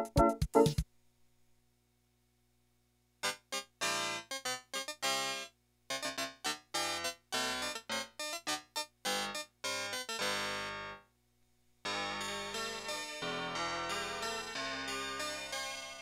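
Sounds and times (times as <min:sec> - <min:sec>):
electronic keyboard chords: 0:00.0 - 0:00.8, 0:03.2 - 0:11.0, 0:11.9 - 0:16.0.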